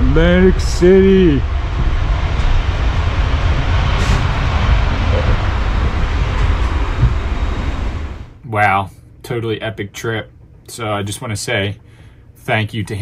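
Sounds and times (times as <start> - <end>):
jet airliner rushing roar: 0.0 - 8.4
deep rumble: 0.0 - 8.5.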